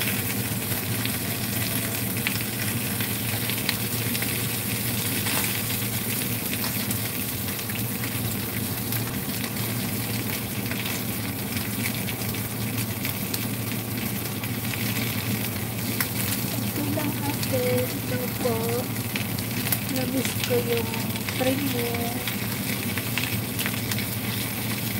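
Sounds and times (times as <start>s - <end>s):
fish sizzling in a pan: 0.0s - 24.9s
steady low hum: 14.0s - 24.9s.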